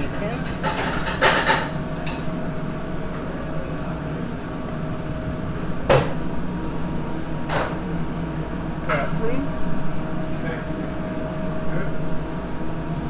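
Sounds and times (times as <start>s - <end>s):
kitchen equipment hum: 0.0s - 13.0s.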